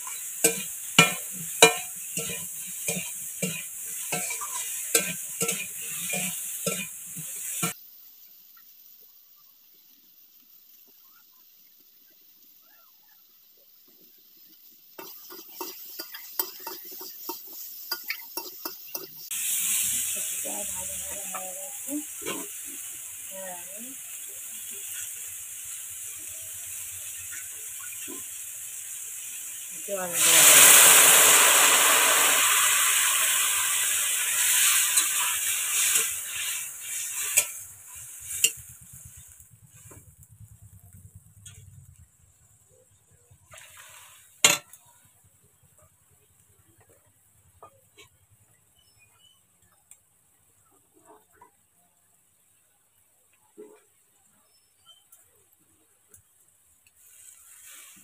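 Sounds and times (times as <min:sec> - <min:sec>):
metal spatula knocking wok: 0:00.0 - 0:07.8, 0:15.0 - 0:19.3
metal utensil scraping a wok: 0:00.0 - 0:07.8, 0:15.0 - 0:22.9, 0:30.1 - 0:40.0
pan sizzling: 0:00.0 - 0:51.6, 0:54.5 - 0:58.0.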